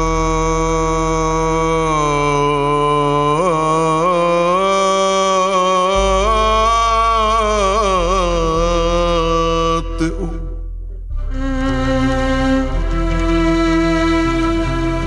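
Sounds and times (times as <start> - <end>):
low instrumental accompaniment: 5.9 - 15.0.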